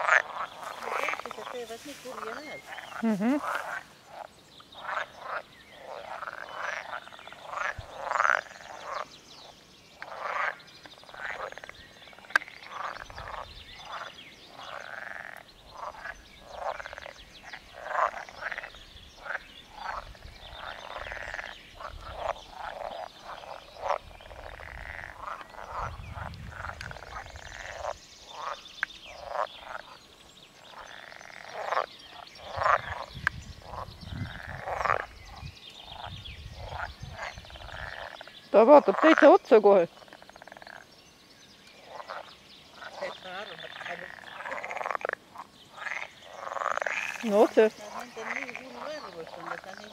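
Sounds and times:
frogs croaking: 0.0s - 49.9s.

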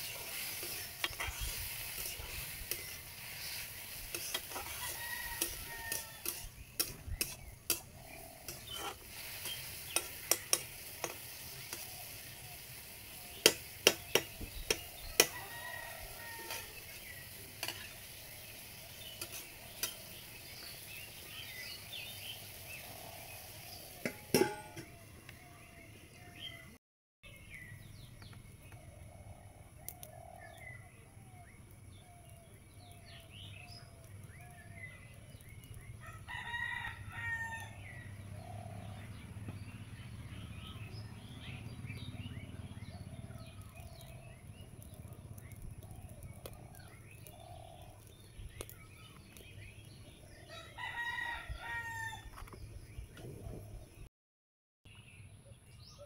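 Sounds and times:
rooster crowing: 4.5s - 6.4s, 15.0s - 16.8s, 36.0s - 38.0s, 50.5s - 52.3s
bird calls and chirps: 24.9s - 54.1s.

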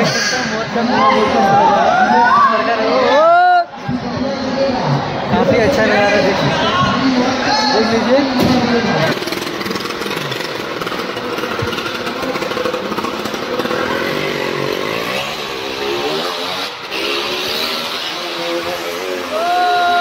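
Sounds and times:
motorcycle engine revving: 8.0s - 20.0s.

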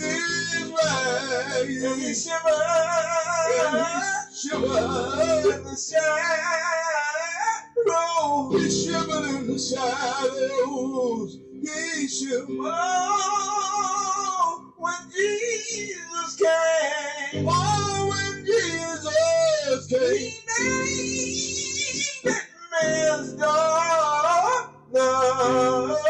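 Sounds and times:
layered singing voices: 0.0s - 5.6s
guitar accompaniment: 0.0s - 26.0s.

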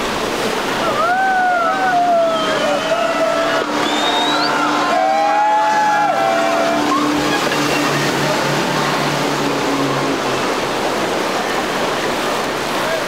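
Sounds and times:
outboard motors humming: 0.0s - 13.0s
rush of spray and wake: 0.0s - 13.0s
person whooping: 0.8s - 7.1s.

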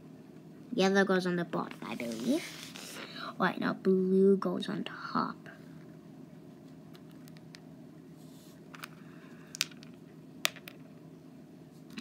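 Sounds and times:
low background hum: 0.0s - 12.0s
hard candies clicking on rubber mat: 6.9s - 7.6s, 8.7s - 10.8s.

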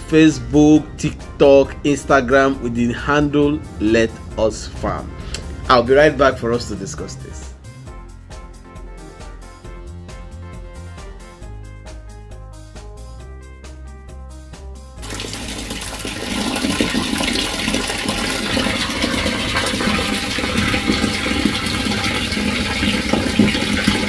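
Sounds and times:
music: 0.0s - 24.0s
water rushing and splashing in a tank: 15.0s - 24.0s.

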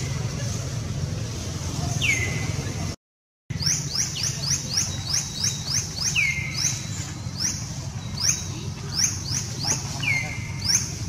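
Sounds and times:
birds chirping: 1.7s - 2.9s, 3.5s - 11.0s.

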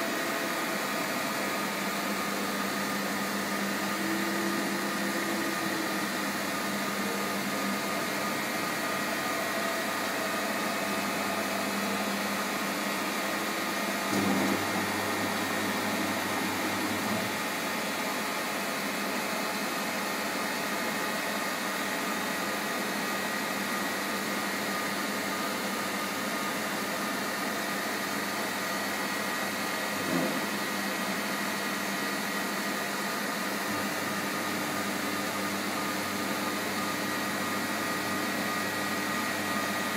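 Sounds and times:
milling machine hum and whine: 0.0s - 39.9s.

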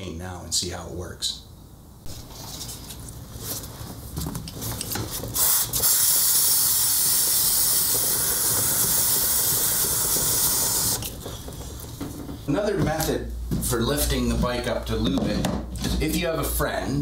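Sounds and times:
aerosol can spraying: 5.4s - 11.1s.

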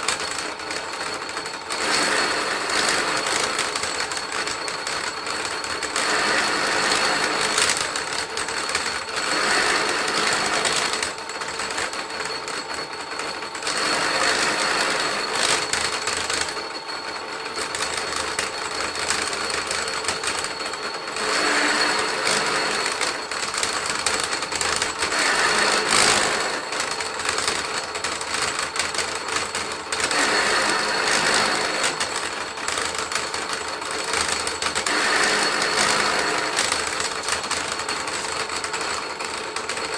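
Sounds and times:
machine whining: 0.0s - 39.9s.

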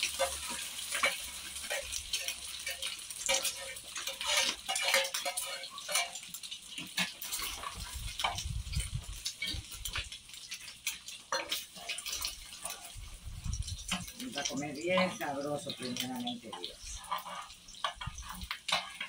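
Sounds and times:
eggs sizzling in hot oil: 0.0s - 19.0s.

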